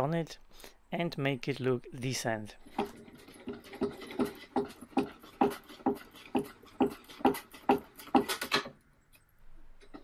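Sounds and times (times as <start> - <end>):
wooden chair creaking and knocking: 2.7 - 8.8.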